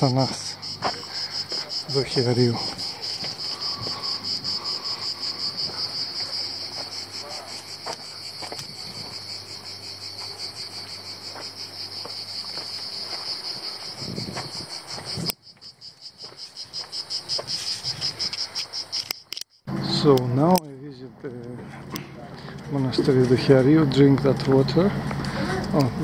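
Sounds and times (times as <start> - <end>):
cicadas buzzing in chorus: 0.0 - 20.6, 22.4 - 26.0
soft footsteps on dirt: 0.1 - 18.4.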